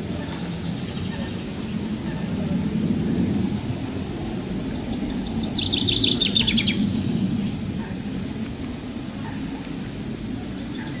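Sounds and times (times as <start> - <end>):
steady low rumble: 0.6 - 10.9
songbirds singing high thin notes: 2.0 - 2.3, 4.8 - 10.0.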